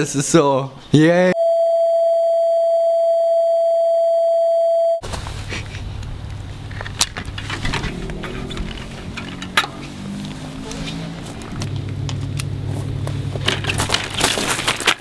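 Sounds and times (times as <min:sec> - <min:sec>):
steady test tone beep: 0:01.4 - 0:05.0
outdoor background rumble: 0:05.0 - 0:15.0.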